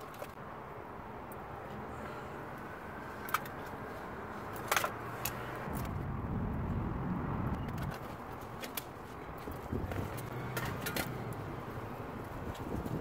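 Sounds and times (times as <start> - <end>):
low rumble: 5.7 - 7.8.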